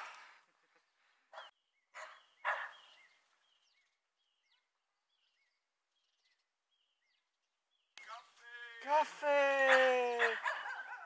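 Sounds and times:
faint bird chirps: 0:00.7 - 0:08.8.

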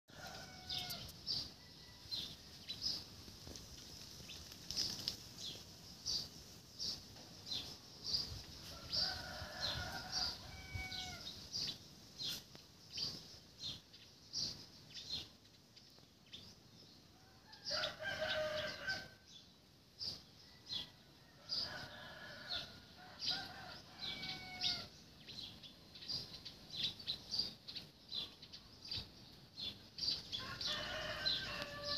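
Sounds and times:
bird chirping: 0:23.2 - 0:31.9.

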